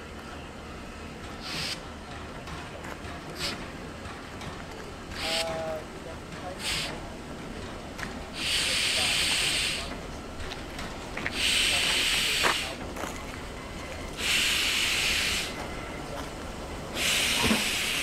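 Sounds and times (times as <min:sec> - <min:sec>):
steam locomotive hissing steam: 0:01.3 - 0:02.0, 0:03.2 - 0:03.8, 0:05.0 - 0:07.6, 0:08.2 - 0:18.0.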